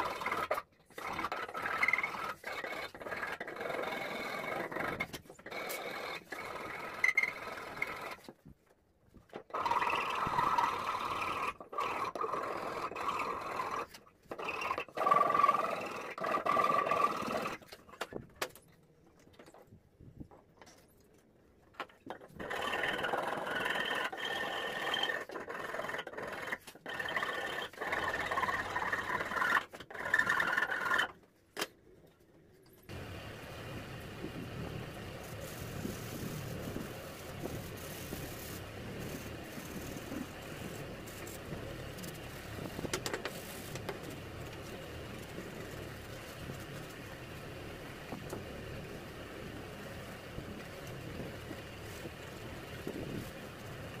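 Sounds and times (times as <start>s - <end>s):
file rasping on wood: 0.0s - 8.2s, 9.5s - 17.7s, 22.1s - 31.1s, 35.4s - 41.5s
hand sanding: 35.2s - 43.9s.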